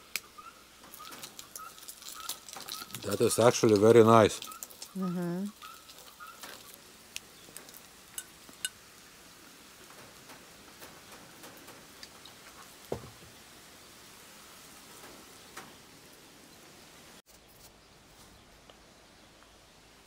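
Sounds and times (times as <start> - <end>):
mushroom sizzling in a pan: 0.0 - 17.2
dull thump: 12.9 - 13.3.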